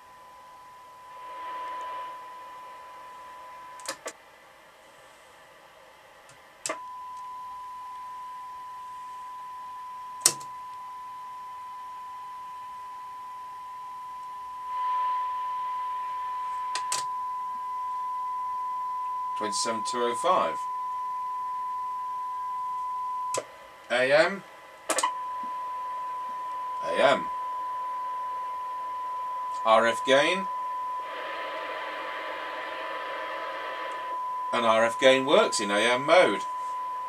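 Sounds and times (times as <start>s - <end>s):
test tone through radio speaker: 0.0s - 4.1s, 6.7s - 37.0s
radio hiss: 1.1s - 4.1s, 14.6s - 17.0s, 19.4s - 20.7s, 23.3s - 25.1s, 25.7s - 27.4s, 29.5s - 36.9s
radio control clicks: 3.8s - 4.2s, 16.7s - 17.1s, 24.8s - 25.2s.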